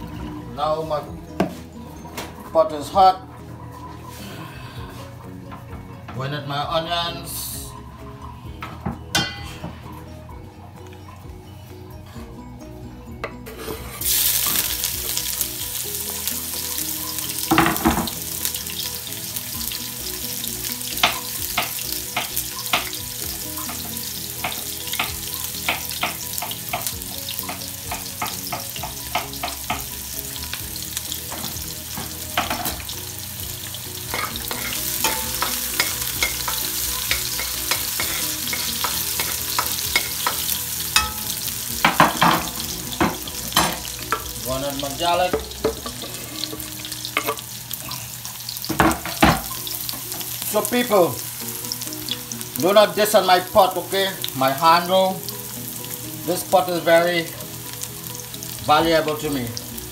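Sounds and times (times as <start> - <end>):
onions sizzling in hot oil: 13.6 - 59.9.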